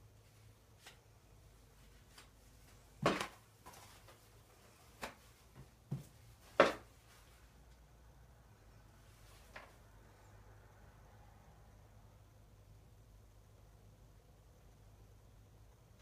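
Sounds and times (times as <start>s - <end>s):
paper towels rustling: 0.1s - 7.6s.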